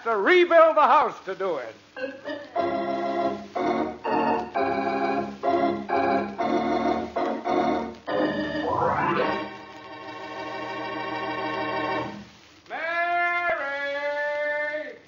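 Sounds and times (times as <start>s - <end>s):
organ chords: 2.3s - 12.3s.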